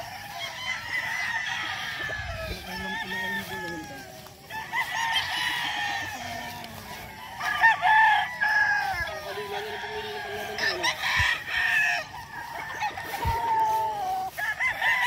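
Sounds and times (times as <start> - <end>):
roosters crowing: 0.0 - 15.0.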